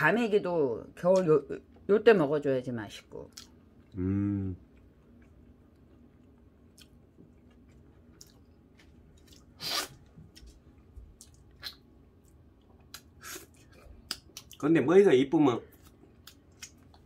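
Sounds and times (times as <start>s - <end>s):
person chewing: 3.3s - 14.6s, 15.7s - 17.0s.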